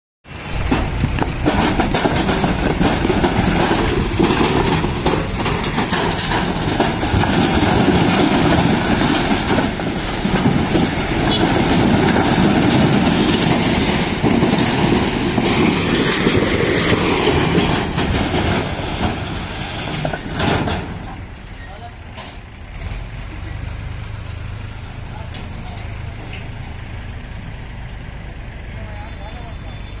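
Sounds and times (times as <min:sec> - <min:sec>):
tractor diesel engine under load: 0:00.2 - 0:30.0.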